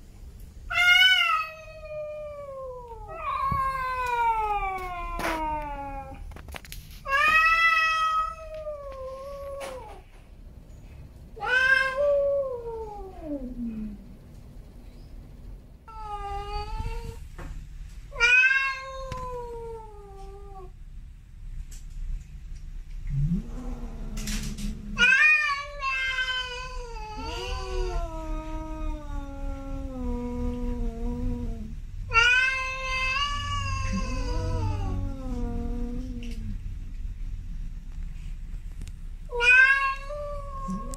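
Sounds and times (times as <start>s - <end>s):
cat yowling: 0.7s - 6.2s, 11.4s - 13.8s, 18.2s - 20.7s, 23.2s - 30.4s, 31.5s - 36.5s, 39.3s - 40.9s.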